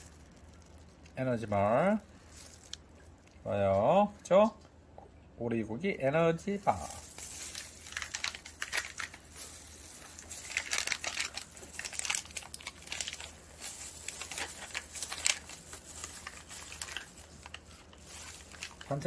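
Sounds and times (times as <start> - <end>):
plastic wrapper crinkling: 0.0 - 3.5, 6.6 - 19.0.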